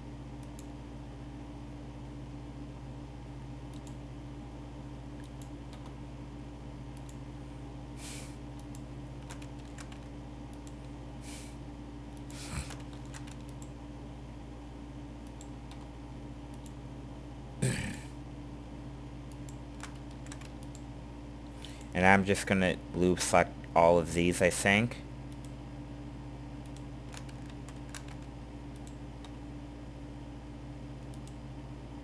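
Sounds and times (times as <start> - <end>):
low electrical hum: 0.0 - 32.0
computer keyboard and mouse clicks: 5.2 - 6.0, 8.6 - 10.9, 12.2 - 13.7, 15.3 - 15.9, 19.3 - 20.8, 26.7 - 29.4.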